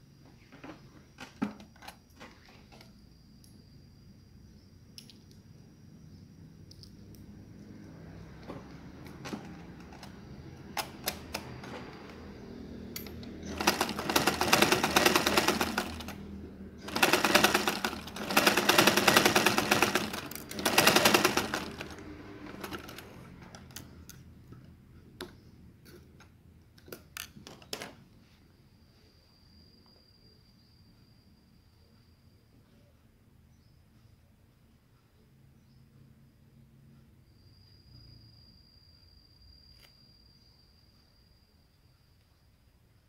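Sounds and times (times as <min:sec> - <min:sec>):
sewing machine stitching: 0:09.1 - 0:12.3, 0:13.1 - 0:23.6.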